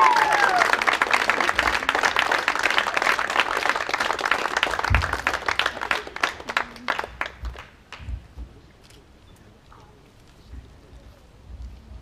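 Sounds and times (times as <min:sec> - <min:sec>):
crowd applauding: 0:00.0 - 0:08.1.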